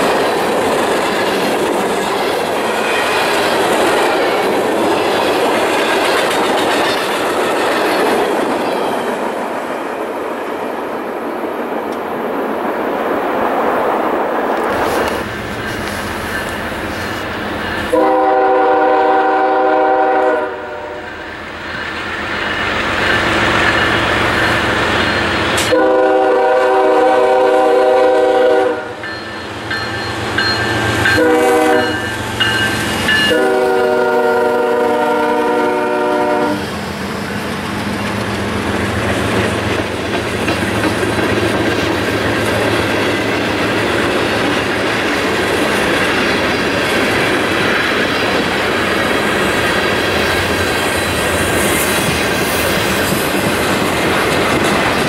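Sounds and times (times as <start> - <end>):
wheels clacking over rail joints: 0.0 - 10.5, 36.8 - 55.0
freight train rumbling past: 0.0 - 55.0
locomotive air horn blasts: 17.9 - 21.2, 25.6 - 29.0, 31.1 - 32.2, 33.2 - 36.7.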